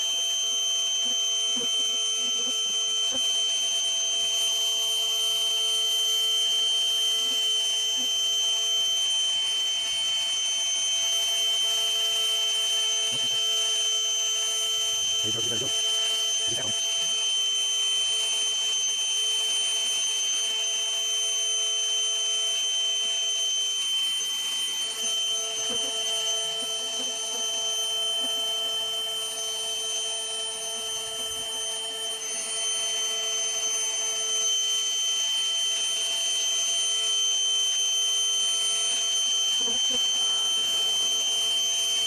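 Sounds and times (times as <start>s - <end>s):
vacuum motor whine and rushing air: 12.8s - 22.8s, 23.6s - 37.4s, 38.6s - 42.0s.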